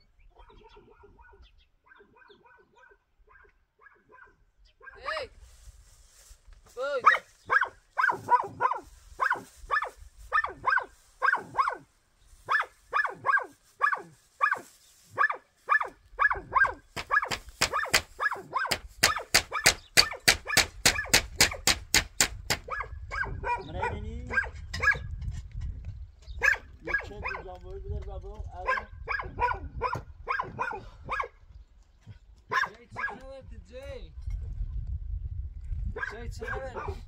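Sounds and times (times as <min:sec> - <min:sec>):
dog barking: 0:00.4 - 0:05.0, 0:07.0 - 0:11.9, 0:12.5 - 0:21.2, 0:22.5 - 0:25.1, 0:26.4 - 0:27.4, 0:28.6 - 0:31.4, 0:32.5 - 0:33.2, 0:36.0 - 0:37.0.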